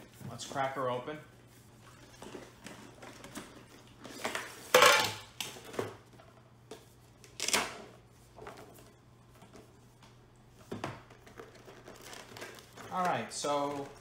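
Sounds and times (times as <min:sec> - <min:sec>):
cardboard and plastic scraping rustle: 0:10.6 - 0:14.0.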